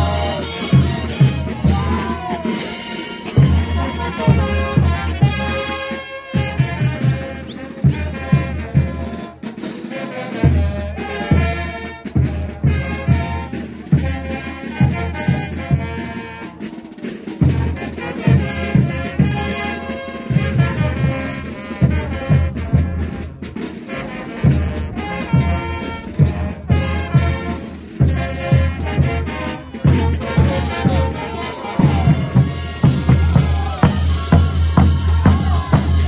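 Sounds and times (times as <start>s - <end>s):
bass drum beat: 0.0s - 2.5s, 3.4s - 5.7s, 20.4s - 36.0s
brass band playing dance music: 0.0s - 36.0s.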